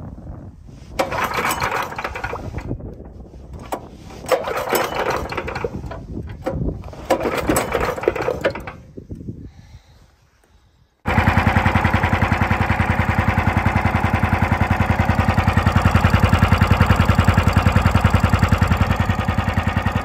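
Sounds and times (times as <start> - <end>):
small engine cranking: 1.0 - 2.8, 3.6 - 8.9, 11.1 - 20.0.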